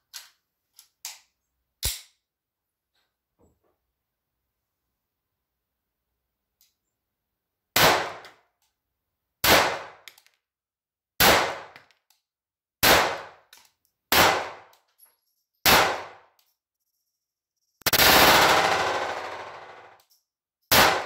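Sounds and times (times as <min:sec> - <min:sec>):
pistol shots: 0:07.8 - 0:08.3, 0:09.4 - 0:10.0, 0:11.2 - 0:11.8, 0:12.8 - 0:13.4, 0:14.1 - 0:14.7, 0:15.6 - 0:16.2, 0:20.7 - 0:21.0.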